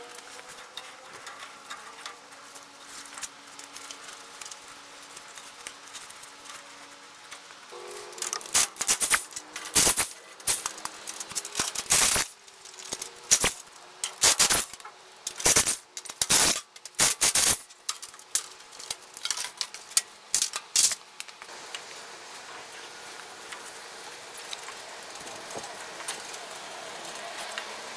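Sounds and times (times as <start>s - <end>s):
metal tools clinking: 7.9s - 21.0s.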